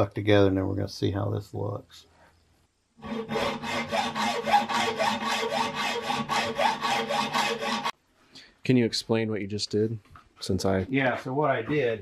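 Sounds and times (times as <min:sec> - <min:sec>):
hacksaw cutting metal: 0:03.0 - 0:08.0.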